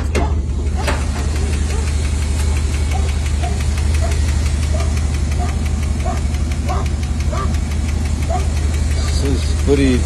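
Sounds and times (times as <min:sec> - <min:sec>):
pickup truck engine idling: 0:00.0 - 0:10.0.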